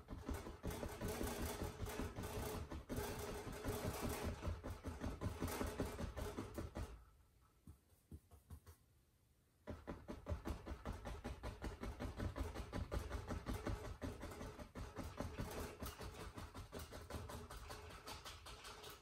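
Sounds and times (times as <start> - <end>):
brush tapping on canvas: 4.5 - 9.0, 9.6 - 19.0.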